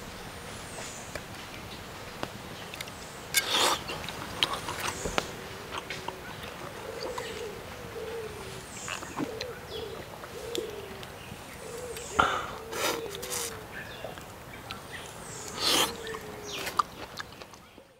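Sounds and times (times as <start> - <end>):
bird calling with short low notes: 2.6 - 17.9.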